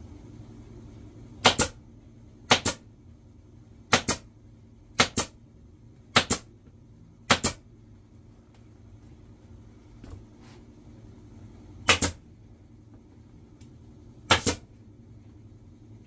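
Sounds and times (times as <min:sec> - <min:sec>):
pneumatic staple gun firing: 0:14.3 - 0:14.6.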